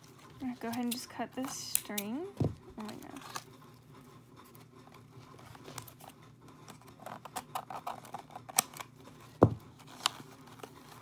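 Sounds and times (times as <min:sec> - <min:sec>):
paper packaging crinkling: 0:04.6 - 0:11.0.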